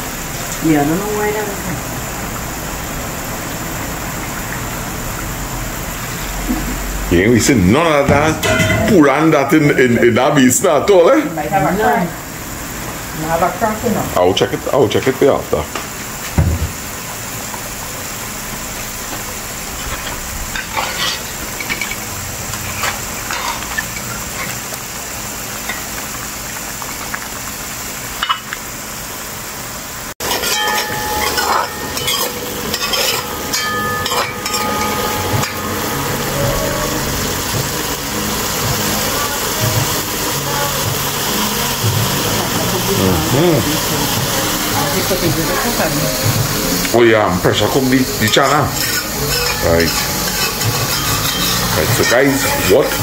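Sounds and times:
curry sizzling in a pot: 0:00.0 - 0:53.0
metal spoon scraping a pot: 0:19.8 - 0:24.6, 0:30.2 - 0:35.6, 0:48.1 - 0:53.0.

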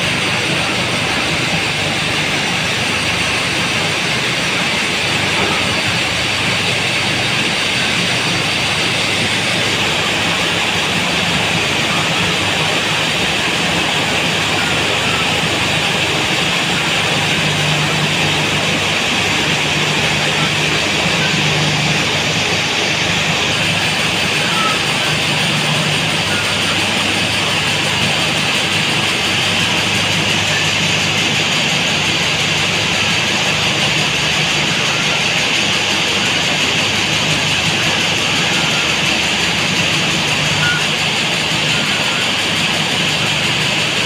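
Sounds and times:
ventilation fans running: 0:00.0 - 0:44.0.

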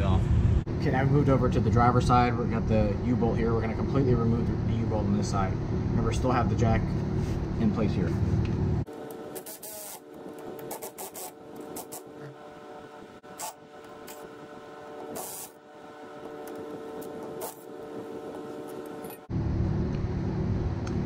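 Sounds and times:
cordless ratchet whirring: 0:14.9 - 0:15.6.

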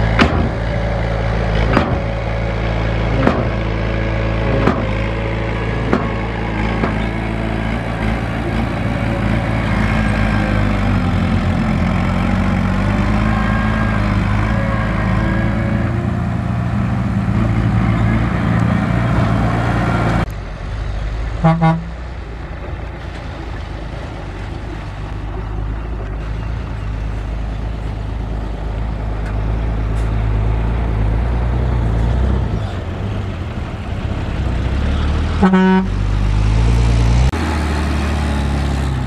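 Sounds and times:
truck engine running: 0:00.0 - 0:39.0
truck horn beeps: 0:13.0 - 0:16.4, 0:21.4 - 0:22.0, 0:35.3 - 0:36.0.

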